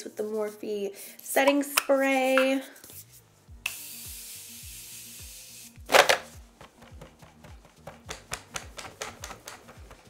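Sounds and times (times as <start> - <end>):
spray bottle misting hiss: 2.2 - 6.0.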